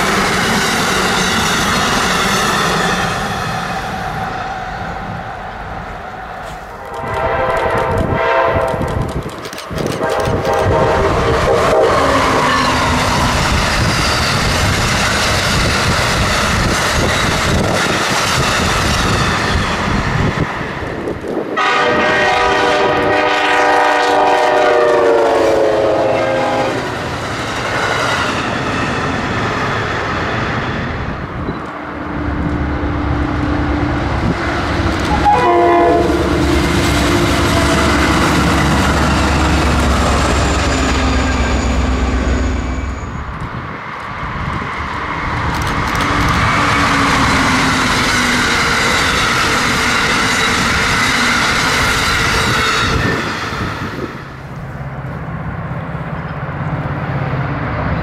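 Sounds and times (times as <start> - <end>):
train coaches rumbling and clattering: 0.0 - 58.0
multi-tone train horn: 6.4 - 9.1, 9.9 - 13.3, 21.5 - 27.0, 34.7 - 43.0.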